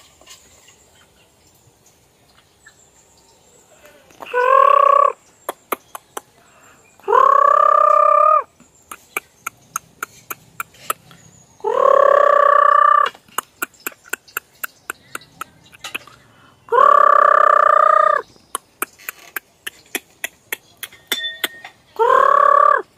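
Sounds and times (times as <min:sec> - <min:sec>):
hens pecking on concrete: 0:08.8 - 0:11.2, 0:13.1 - 0:16.3, 0:18.4 - 0:21.9.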